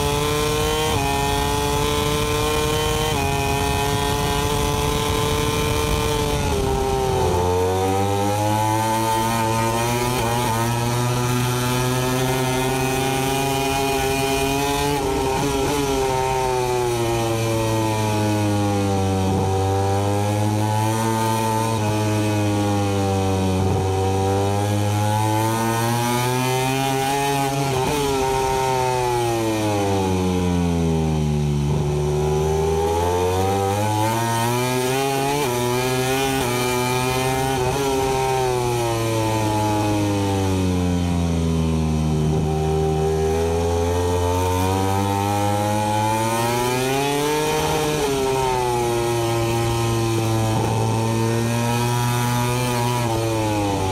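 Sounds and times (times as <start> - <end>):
racing motorcycle engine revving: 0.0 - 53.9.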